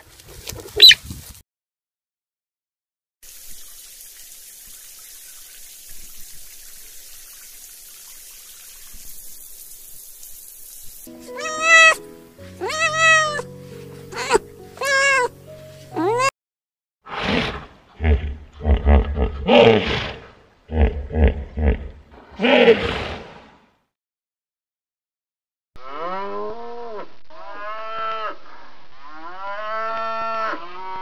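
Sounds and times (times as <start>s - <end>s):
steady hiss: 3.3s - 11.5s
cat meowing: 11.3s - 12.0s, 12.6s - 13.5s, 14.1s - 15.3s, 16.0s - 16.3s.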